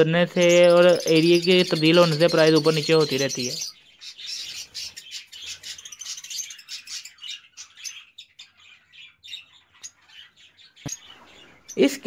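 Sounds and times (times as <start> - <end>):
budgerigars chirping: 0.0 - 12.0.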